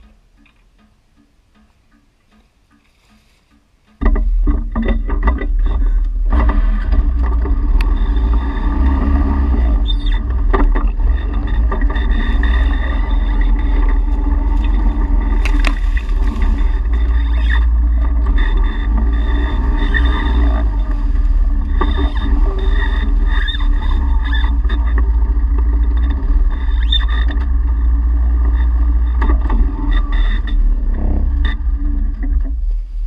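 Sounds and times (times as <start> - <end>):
vehicle engine running: 4.1 - 33.0.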